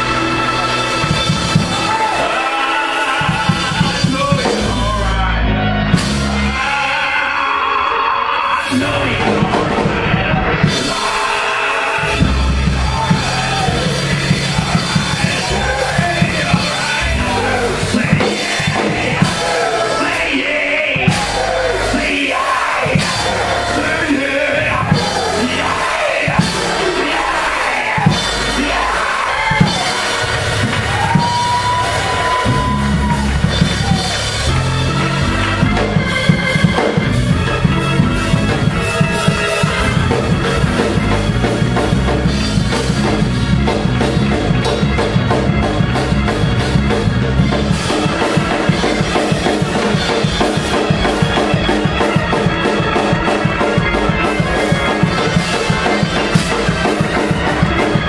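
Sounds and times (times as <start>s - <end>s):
voices raised: 0.0s - 42.3s
church band music with drums: 0.0s - 58.0s.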